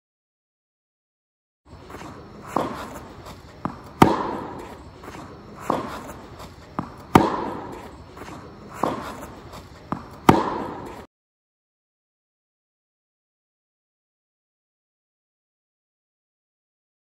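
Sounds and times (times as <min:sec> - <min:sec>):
tennis racket hitting ball: 0:01.7 - 0:11.1
soft ball knocks: 0:02.5 - 0:11.1.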